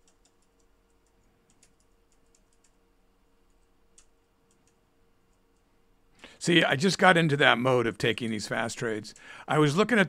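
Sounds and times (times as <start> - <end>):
keyboard and mouse clicks: 0.0 - 2.8, 3.5 - 4.8.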